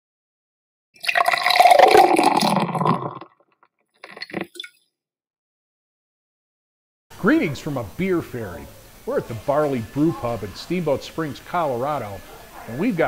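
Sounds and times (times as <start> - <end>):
beer pouring into glass: 1.0 - 3.4, 4.0 - 4.7.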